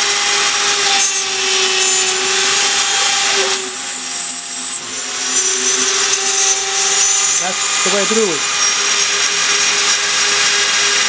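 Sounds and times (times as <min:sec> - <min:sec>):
router spindle milling whine: 0:00.0 - 0:11.0
high whistle: 0:03.4 - 0:07.6.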